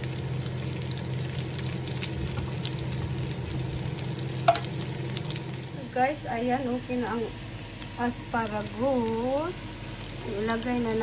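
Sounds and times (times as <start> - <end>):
vegetables sizzling in a pan: 0.0 - 11.0
wooden spoon knocking pan: 4.4 - 4.7.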